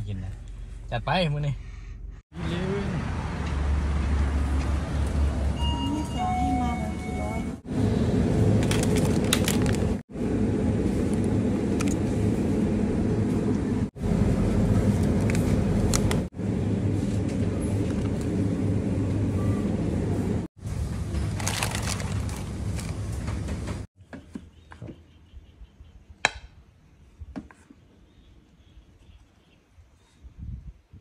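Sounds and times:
refrigerator hum: 0:07.7 - 0:23.8
plastic food packets crinkling: 0:08.7 - 0:10.0, 0:21.2 - 0:23.0.

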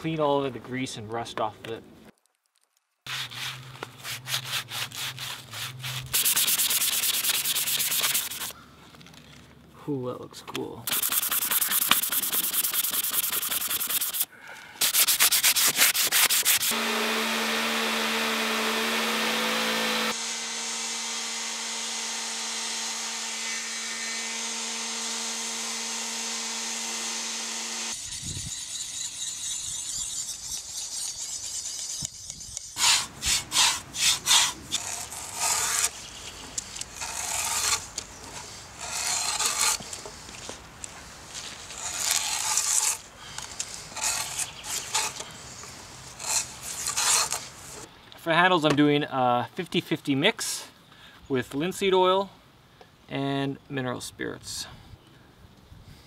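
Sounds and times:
drawknife shaving wood: 0:03.1 - 0:08.5, 0:10.9 - 0:20.2, 0:24.4 - 0:47.9
sandpaper rubbing metal blade: 0:03.1 - 0:08.5, 0:10.9 - 0:16.8, 0:27.8 - 0:40.6, 0:41.3 - 0:47.9
random orbit sander humming: 0:10.9 - 0:29.6.

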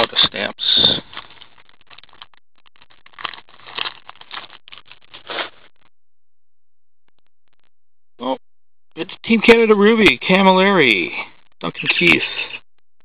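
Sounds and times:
cards rustling: 0:01.0 - 0:05.6
foil wrapper crinkling: 0:01.0 - 0:05.7.

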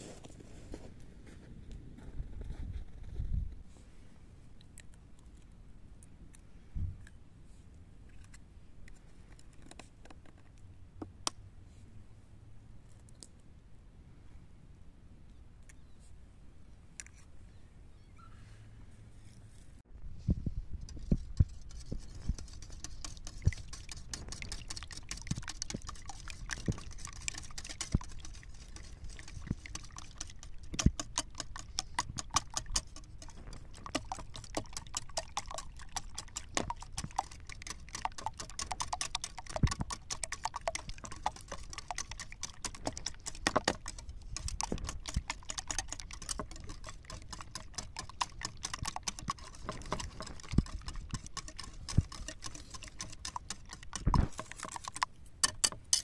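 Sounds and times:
whisk clicking against bowl: 0:20.9 - 0:56.0.

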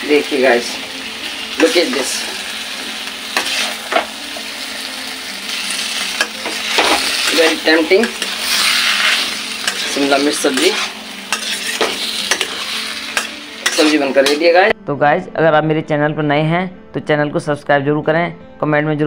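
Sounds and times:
food sizzling in pan: 0:00.0 - 0:14.7
spatula scraping metal pan: 0:03.3 - 0:04.1, 0:06.0 - 0:14.5.

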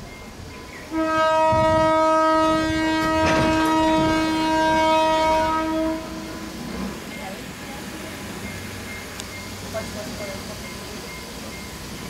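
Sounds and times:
rumble of running train: 0:00.0 - 0:12.0
locomotive horn blast: 0:00.9 - 0:06.7.

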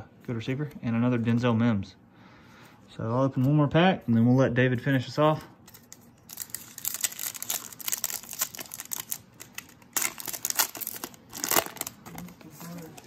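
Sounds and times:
foil wrapper crinkling and tearing: 0:05.7 - 0:13.0.

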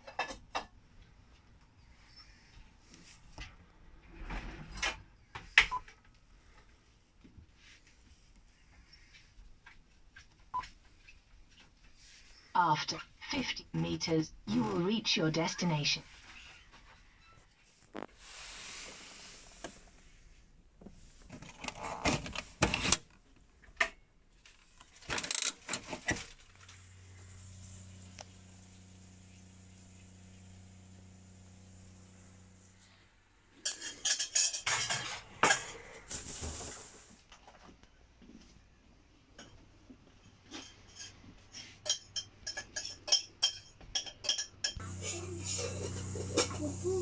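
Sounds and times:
low steady hum: 0:26.5 - 0:33.1, 0:44.8 - 0:47.0.

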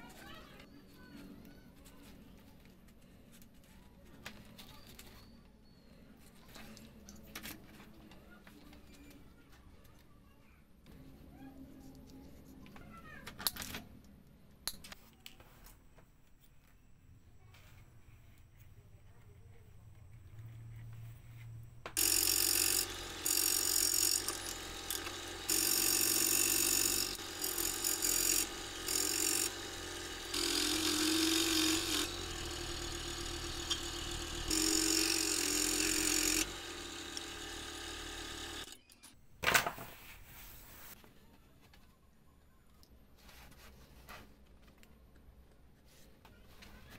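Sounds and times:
scroll saw cutting wood: 0:22.0 - 0:38.8.

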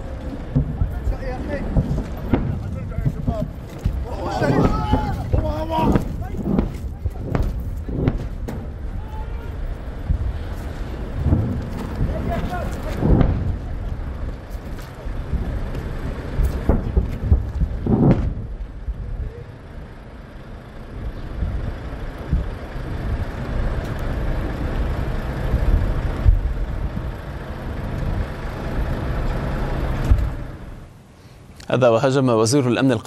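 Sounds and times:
wind buffeting microphone: 0:00.0 - 0:19.9, 0:20.9 - 0:30.9
sudden thuds: 0:00.4 - 0:09.0, 0:11.1 - 0:13.8, 0:16.4 - 0:18.7.

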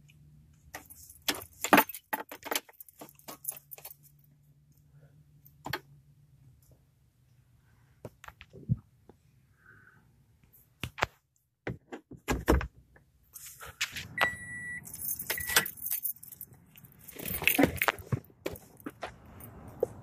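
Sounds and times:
car keys jangling: 0:00.8 - 0:04.2, 0:14.3 - 0:19.8
clicks and knocks in car cabin: 0:11.6 - 0:13.1.

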